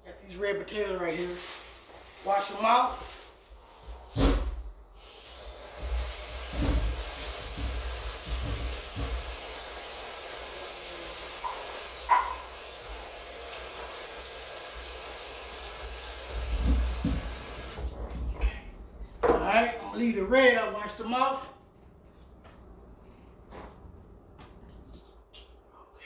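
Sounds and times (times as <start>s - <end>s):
tap running: 5.7s - 13.7s, 14.6s - 18.3s.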